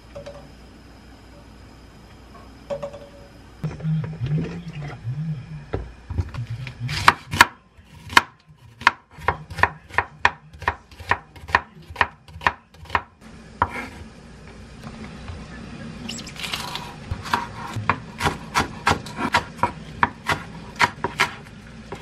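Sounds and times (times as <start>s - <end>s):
knife chopping on wooden board: 6.9s - 14.0s, 17.2s - 22.0s.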